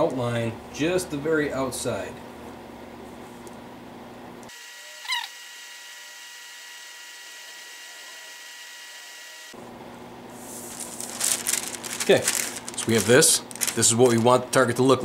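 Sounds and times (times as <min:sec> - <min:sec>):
faint electrical hum: 0:00.0 - 0:07.2, 0:09.4 - 0:15.0
tracing paper rustling: 0:10.3 - 0:14.9.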